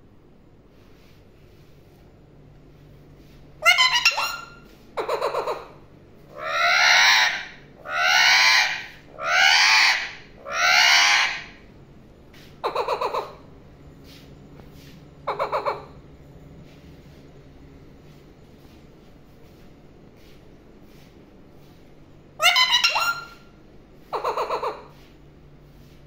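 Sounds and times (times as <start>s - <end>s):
parakeet calling: 3.6s - 11.6s, 12.6s - 13.5s, 15.2s - 16.0s, 22.4s - 25.1s.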